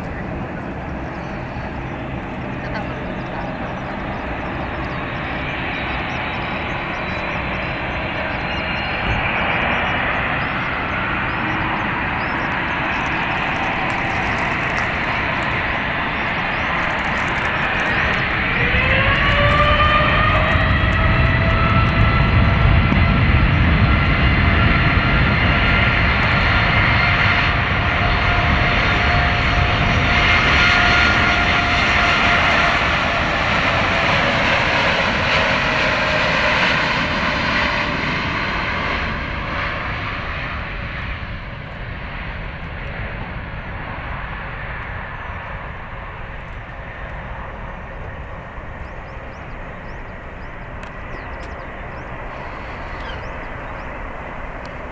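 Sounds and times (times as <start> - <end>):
jet engine roar with fan whine: 0.0 - 54.9.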